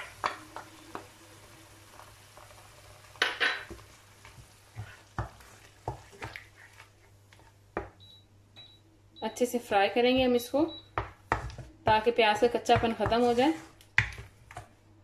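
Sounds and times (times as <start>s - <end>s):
faint sizzle of frying: 0.0s - 8.2s, 9.3s - 15.0s
wooden spoon scraping a pan: 3.5s - 7.6s, 11.3s - 14.7s.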